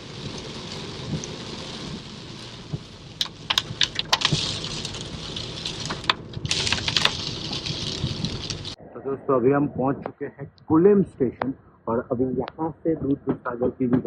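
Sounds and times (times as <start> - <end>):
rain hissing on car: 0.0 - 8.8
sharp rain taps: 0.0 - 8.8.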